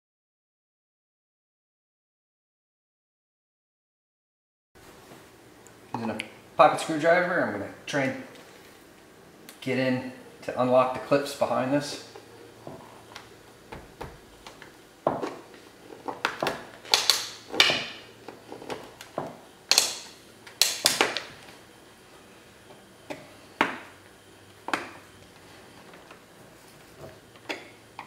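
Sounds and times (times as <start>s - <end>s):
plastic clips clicking and snapping: 16.2s - 17.8s, 19.7s - 21.3s.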